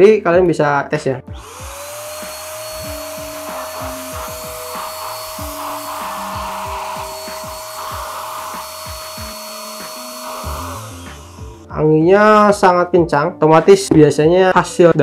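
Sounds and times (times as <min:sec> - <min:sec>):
paint spray gun motor blowing air: 0:01.4 - 0:11.7.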